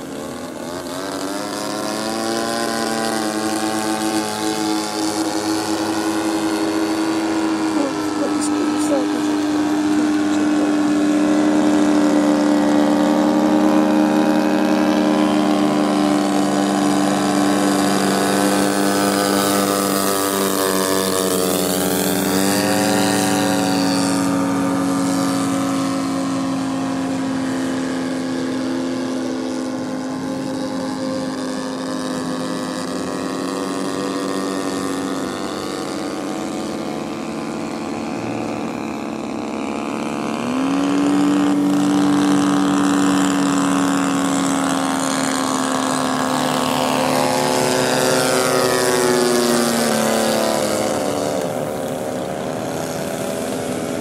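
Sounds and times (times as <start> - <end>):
model airplane engine droning: 0.0 - 54.0.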